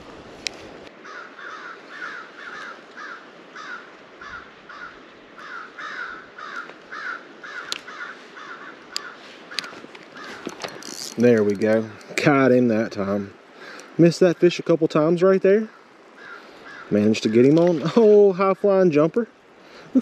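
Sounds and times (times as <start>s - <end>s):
reel bail click: 8.9s - 12.2s
reel handle whirring: 9.6s - 12.2s.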